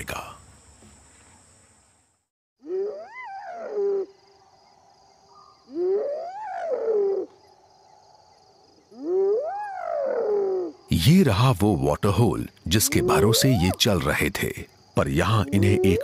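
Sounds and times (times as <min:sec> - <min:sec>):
high insect drone: 0:00.0 - 0:16.0
hyena whooping: 0:12.7 - 0:13.8.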